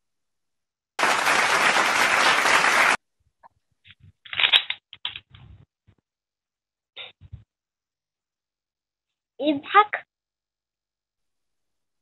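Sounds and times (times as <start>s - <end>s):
applause sound effect: 1.0s - 3.0s.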